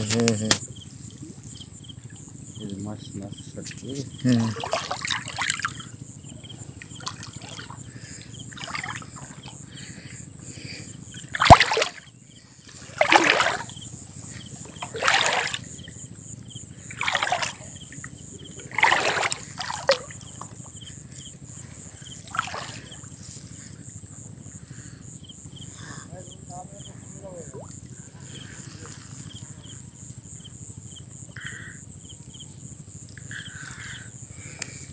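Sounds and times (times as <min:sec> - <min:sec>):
water splashing and dripping: 0:04.2 - 0:05.9, 0:06.8 - 0:07.8, 0:08.6 - 0:09.6, 0:11.3 - 0:12.0, 0:12.7 - 0:13.7, 0:14.6 - 0:15.6, 0:17.0 - 0:17.7, 0:18.7 - 0:20.2, 0:22.3 - 0:23.0.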